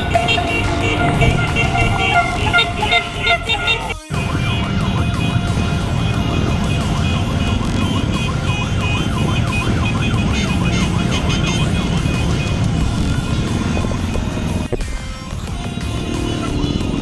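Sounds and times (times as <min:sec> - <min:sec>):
siren sweeping up and down: 0:00.0 - 0:13.3
motorcycle engines rumbling: 0:00.0 - 0:17.0.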